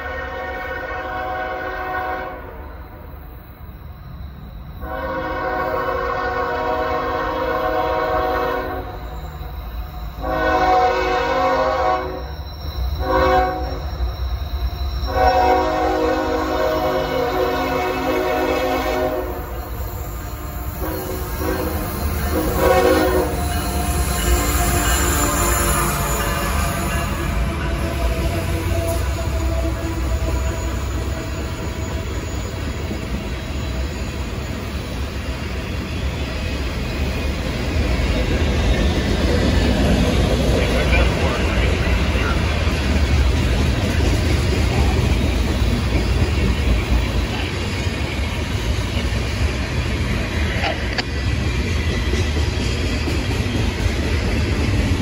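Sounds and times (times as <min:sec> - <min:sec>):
locomotive air horn blasts: 0:00.0 - 0:02.7, 0:04.8 - 0:09.0, 0:10.2 - 0:12.3, 0:13.0 - 0:13.9, 0:15.1 - 0:19.6, 0:20.8 - 0:23.4
train cars rolling on rails: 0:00.0 - 0:55.0.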